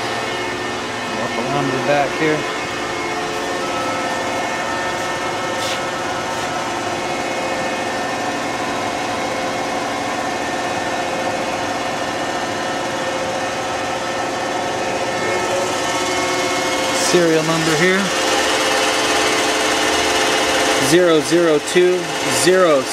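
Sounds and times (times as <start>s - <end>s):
machine hum and whir: 0.0s - 22.9s
steady machine tones: 0.0s - 22.9s.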